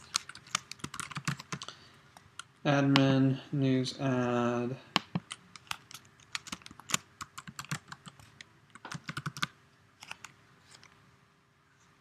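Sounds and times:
typing on keyboard: 0.0 - 1.7, 5.0 - 10.3.

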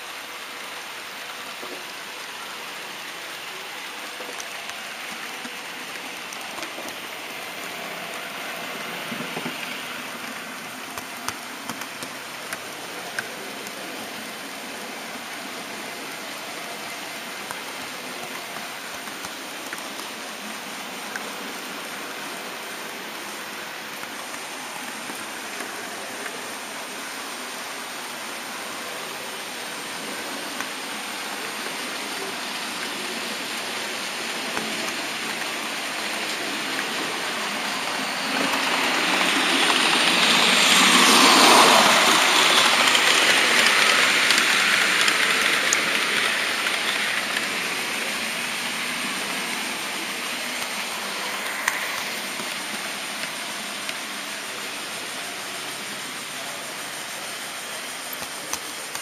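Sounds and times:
model train wheels and motor: 0.0 - 59.0
wheels clicking over rail joints: 31.4 - 55.1.

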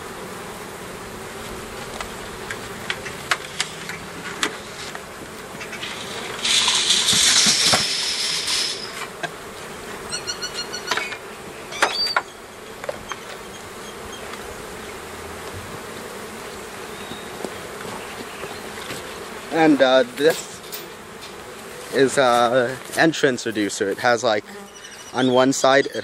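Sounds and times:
honeybees humming: 0.0 - 26.0
loud hiss of noise: 5.7 - 9.1.

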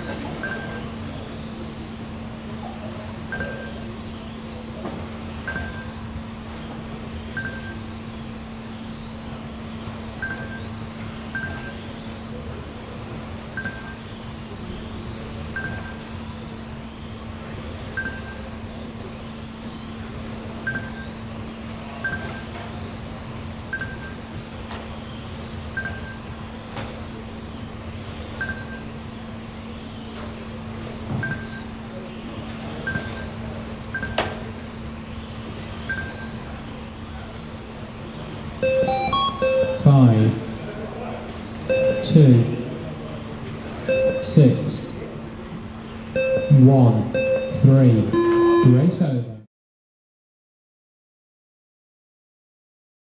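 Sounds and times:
short electronic beeps: 0.0 - 0.9, 3.3 - 3.9, 5.5 - 6.0, 7.4 - 8.0, 10.2 - 11.9, 13.6 - 14.1, 15.6 - 16.1, 18.0 - 18.5, 20.7 - 21.2, 22.0 - 22.5, 23.7 - 24.2, 25.8 - 26.3, 28.4 - 28.9, 31.2 - 31.7, 32.8 - 34.3, 35.8 - 36.5, 38.6 - 40.2, 41.7 - 42.2, 43.9 - 44.4, 46.2 - 48.9
steady low hum: 0.0 - 49.5.

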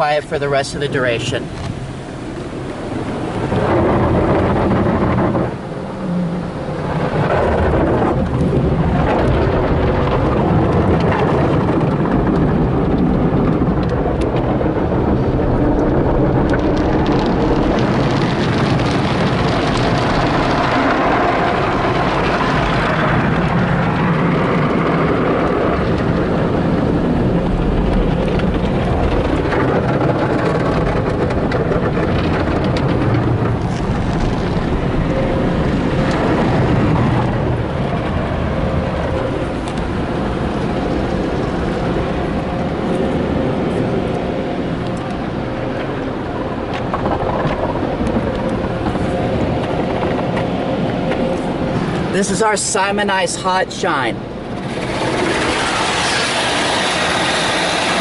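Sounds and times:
water spraying onto car: 0.0 - 58.0
cloth scrubbing and slapping car: 54.6 - 58.0.

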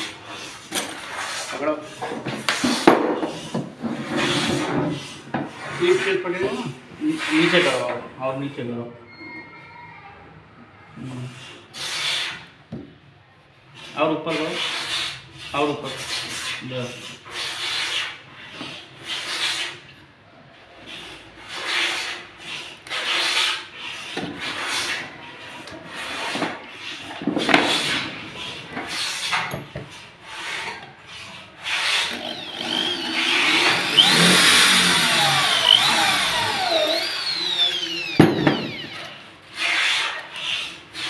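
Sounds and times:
metal scraping against wood: 25.9 - 40.6
electric drill driving screws: 31.8 - 39.2.

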